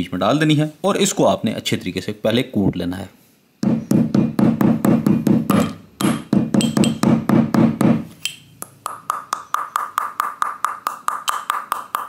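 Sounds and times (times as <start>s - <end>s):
pestle pounding in metal mortar: 3.6s - 12.0s.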